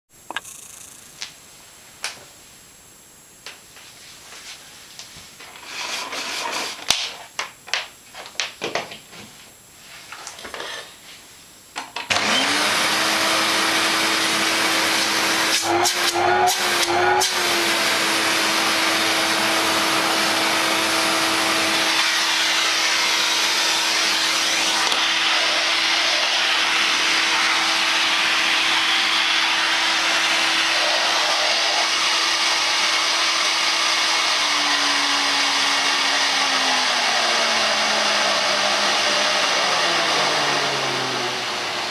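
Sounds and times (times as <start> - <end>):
vacuum cleaner motor whining: 11.8 - 41.9.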